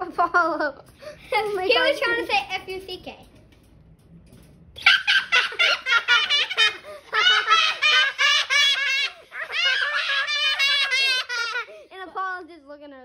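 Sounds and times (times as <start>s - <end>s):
child laughing: 4.8s - 11.9s.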